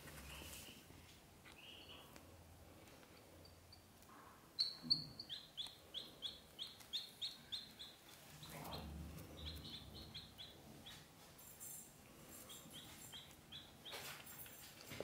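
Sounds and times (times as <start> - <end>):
ducklings peeping: 4.5 - 11.7, 12.3 - 14.2.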